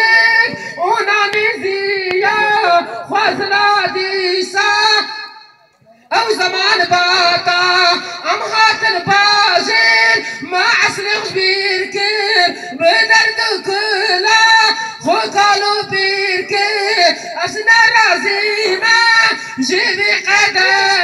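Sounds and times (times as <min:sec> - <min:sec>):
man singing through loudspeaker: 0:00.0 - 0:21.0.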